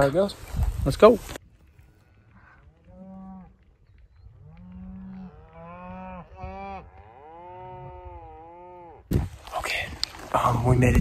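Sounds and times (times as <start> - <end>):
cattle mooing: 4.5 - 9.1.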